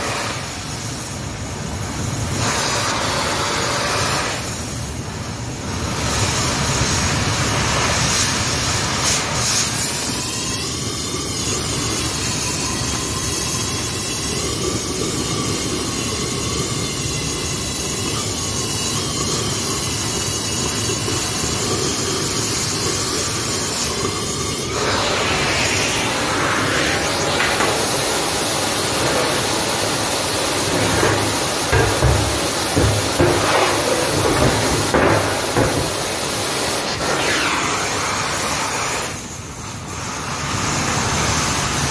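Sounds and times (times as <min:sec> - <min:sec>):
cutting torch roaring: 0:21.2 - 0:39.3
steel knocking: 0:26.6 - 0:36.8.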